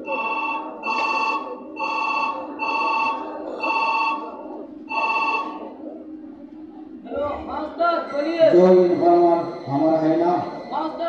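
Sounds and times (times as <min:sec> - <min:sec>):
telephone ringtone ringing: 0:00.0 - 0:04.3, 0:04.9 - 0:05.6.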